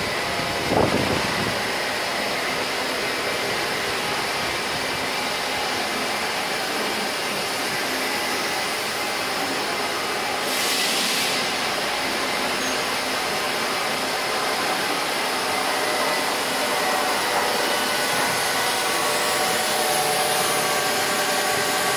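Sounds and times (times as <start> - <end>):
lathes running with hiss: 0.0 - 21.9.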